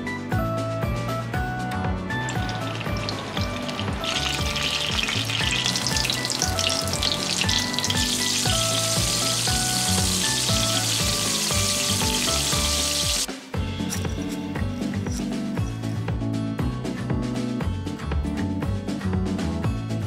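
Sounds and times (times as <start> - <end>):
background music: 0.0 - 20.0
tofu sizzling in hot oil: 2.3 - 13.3.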